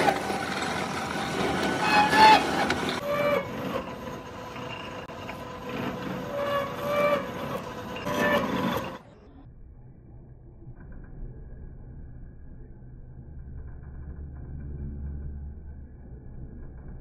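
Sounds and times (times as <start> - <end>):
machine running: 0.0 - 9.4.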